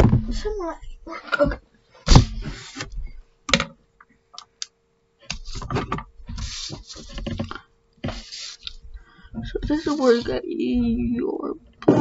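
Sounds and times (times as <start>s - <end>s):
faint steady hum: 0.0s - 12.0s
paper rustling and sliding: 2.1s - 3.0s, 5.3s - 8.8s, 9.6s - 10.4s.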